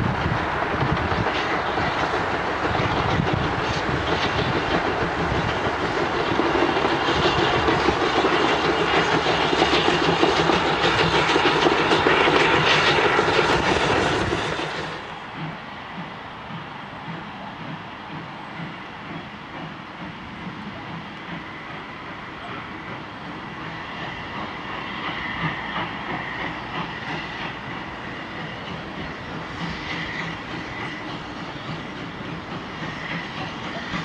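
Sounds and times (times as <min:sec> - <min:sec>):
steam locomotive exhaust: 0:00.0 - 0:34.0.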